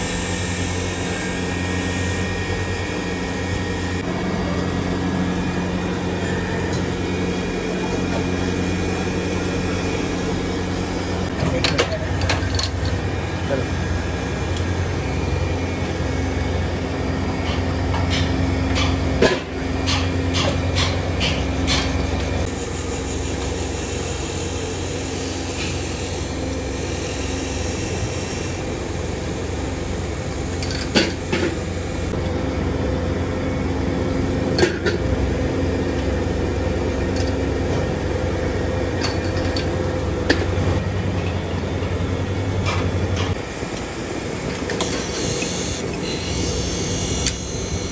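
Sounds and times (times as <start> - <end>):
lathe running with electric hum: 0.0 - 47.9.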